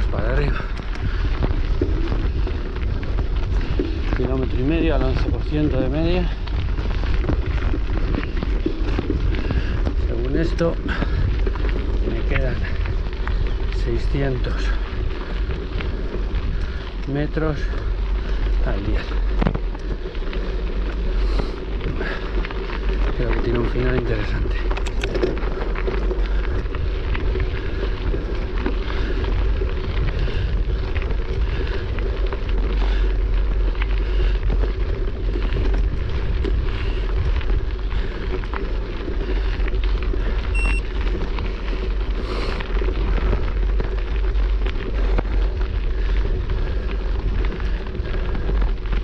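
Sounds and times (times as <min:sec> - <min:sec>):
wind rumble on microphone: 0:00.0 - 0:49.0
electronic beep: 0:40.5 - 0:40.8.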